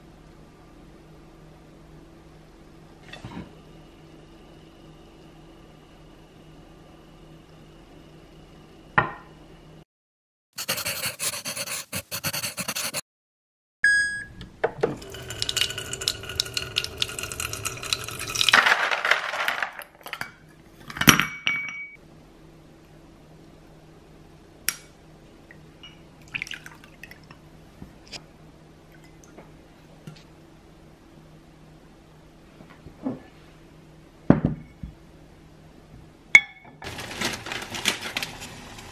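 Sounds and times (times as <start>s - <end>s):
dish set down knock: 9.0s - 9.3s, 34.3s - 34.7s
kitchen clatter: 14.7s - 21.8s
water running into container: 14.9s - 20.2s, 26.2s - 27.4s.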